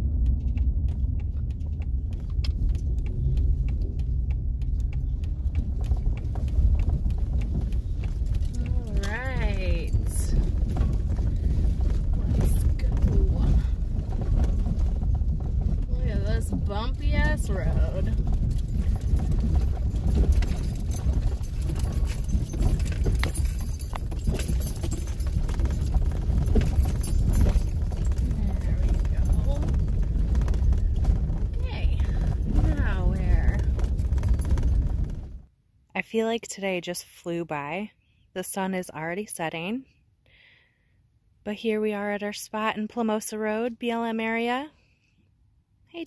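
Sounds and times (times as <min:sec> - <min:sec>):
small clicks and rattles: 0:00.0 - 0:35.5
engine and road rumble: 0:00.0 - 0:46.0.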